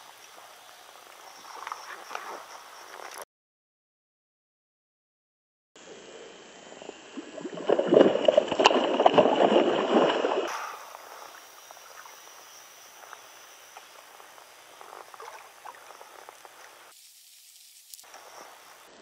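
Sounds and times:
soft water sounds: 0:05.9 - 0:18.9
water splashing: 0:07.2 - 0:12.2, 0:13.8 - 0:18.0
faint ticks: 0:13.0 - 0:16.8.

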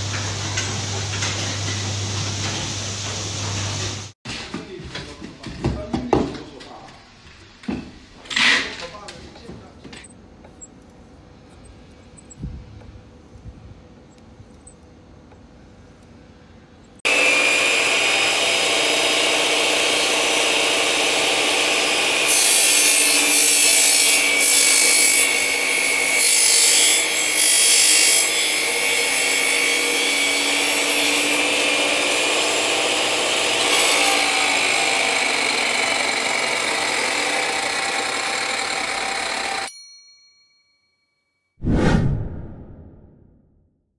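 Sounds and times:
saw blade cutting wood: 0:17.1 - 0:39.7
chop saw whining: 0:28.7 - 0:39.7.

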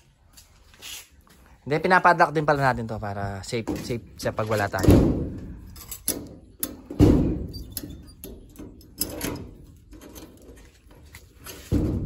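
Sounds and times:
padlock metallic clicks and knocks: 0:03.7 - 0:10.5.

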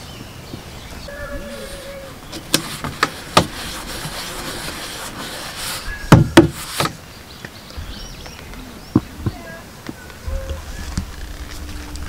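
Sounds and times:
palm rubbing on plastic: 0:01.4 - 0:07.0
deep knocks on plastic: 0:06.1 - 0:07.0.

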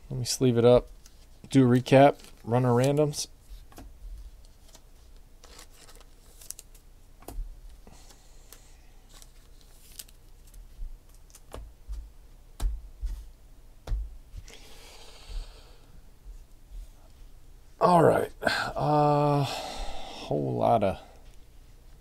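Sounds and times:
plastic sleeve rustling: 0:00.8 - 0:06.9, 0:08.5 - 0:11.6.

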